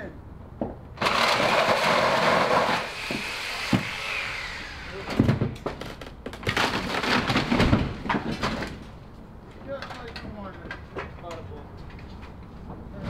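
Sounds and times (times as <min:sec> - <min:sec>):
wood and metal cracking and falling: 0:01.0 - 0:02.9, 0:05.2 - 0:09.0
loud continuous rasping noise: 0:01.0 - 0:05.5.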